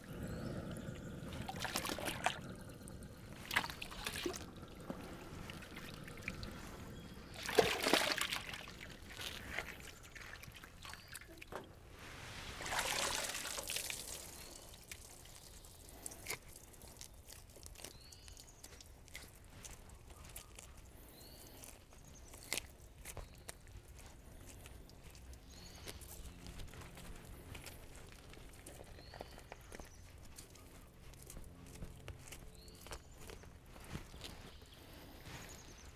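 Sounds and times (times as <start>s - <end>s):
water pouring and dripping: 0.1s - 11.7s, 12.4s - 17.1s
water sloshing and splashing: 1.1s - 15.4s.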